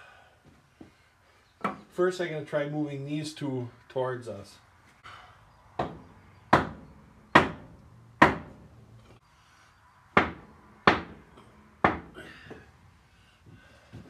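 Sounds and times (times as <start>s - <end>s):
hammer knocks on metal: 5.8s - 6.8s, 10.2s - 11.2s.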